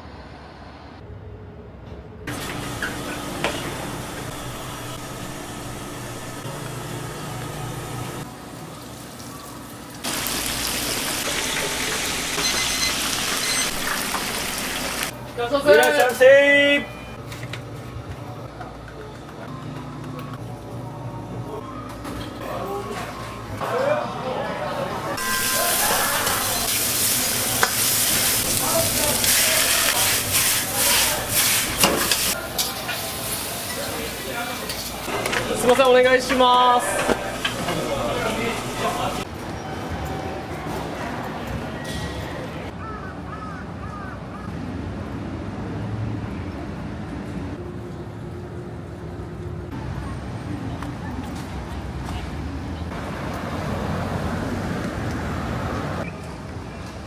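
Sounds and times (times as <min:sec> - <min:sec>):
vegetables sizzling in a wok: 0:07.7 - 0:15.1, 0:25.2 - 0:35.1
chicken deep-frying in oil: 0:08.0 - 0:15.1, 0:25.2 - 0:35.1.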